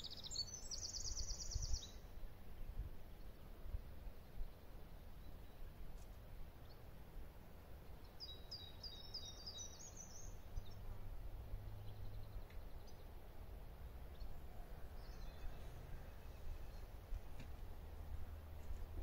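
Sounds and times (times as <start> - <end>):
songbird singing high notes: 0.0 - 2.0.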